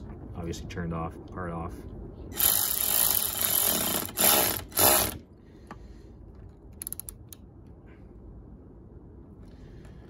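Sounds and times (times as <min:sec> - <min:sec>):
ratchet wrench clicking: 0:02.3 - 0:05.2, 0:06.7 - 0:07.4.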